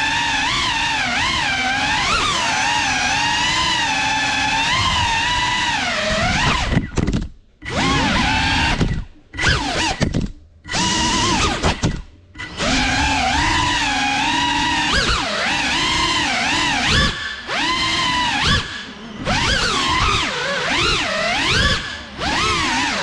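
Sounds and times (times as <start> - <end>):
drone motors whining: 0.0 - 23.0.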